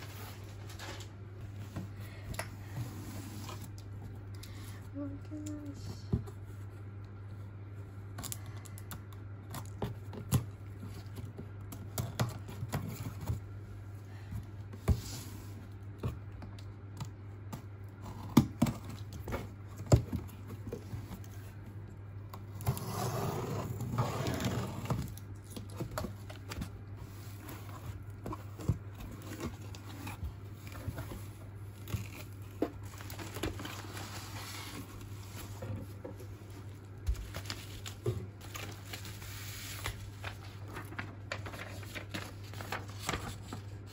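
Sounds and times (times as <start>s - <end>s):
steady low hum: 0.0s - 43.9s
bubble wrap rustling: 23.7s - 43.9s.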